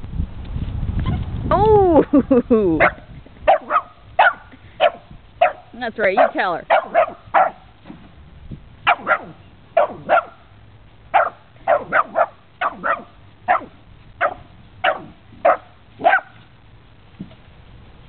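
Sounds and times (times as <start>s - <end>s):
dog barking: 2.8s - 7.6s, 8.8s - 10.4s, 11.1s - 16.4s.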